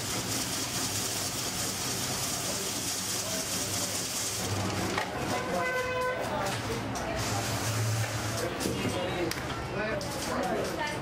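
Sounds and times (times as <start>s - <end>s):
ice shaving machine grinding: 0.0s - 6.3s.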